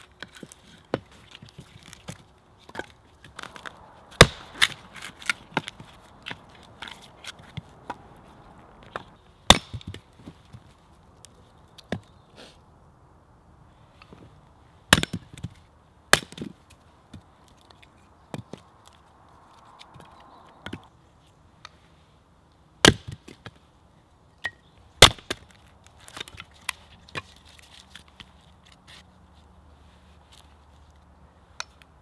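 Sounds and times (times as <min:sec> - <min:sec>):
hatchet chopping wood: 0:02.1 - 0:08.0, 0:08.9 - 0:10.1, 0:14.9 - 0:16.6, 0:22.8 - 0:23.5, 0:24.4 - 0:25.5.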